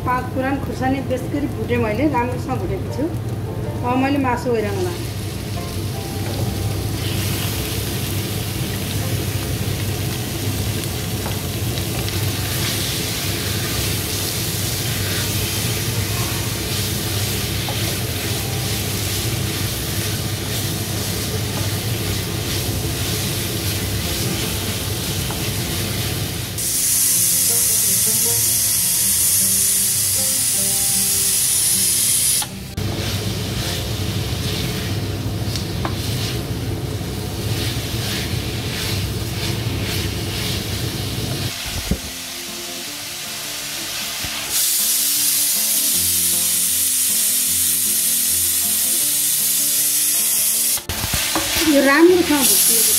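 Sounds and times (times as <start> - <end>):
meat sizzling in hot oil: 4.4 - 52.9.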